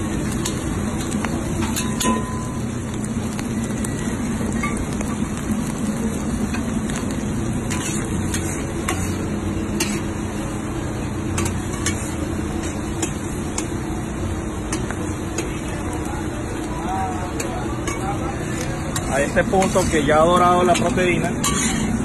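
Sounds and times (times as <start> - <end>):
meat sizzling in a wok: 0.0 - 22.0
metal spatula scraping a pan: 7.6 - 10.1, 11.3 - 13.7, 17.8 - 22.0.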